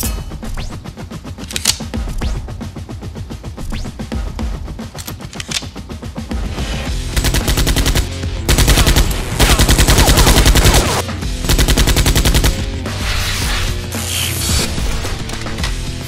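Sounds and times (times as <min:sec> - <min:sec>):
background music: 0:00.0 - 0:16.0
automatic gunfire bursts: 0:07.2 - 0:12.6.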